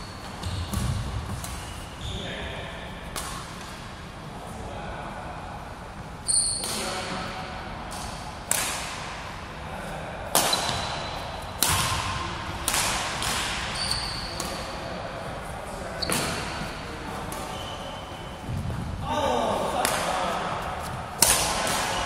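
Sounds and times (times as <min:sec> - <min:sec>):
shoes squeaking on court: 0:00.0 - 0:02.3, 0:13.8 - 0:14.5, 0:15.9 - 0:18.8
racket striking shuttlecock: 0:07.9 - 0:09.2, 0:10.3 - 0:11.0, 0:11.6 - 0:14.7, 0:21.2 - 0:22.0.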